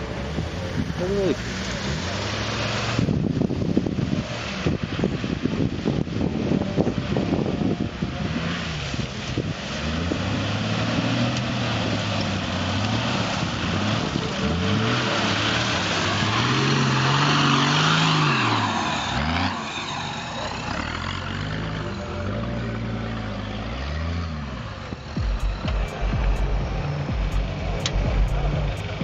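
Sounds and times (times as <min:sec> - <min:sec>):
off-road engine revving: 0:00.0 - 0:29.0
wheels churning mud: 0:00.0 - 0:29.0.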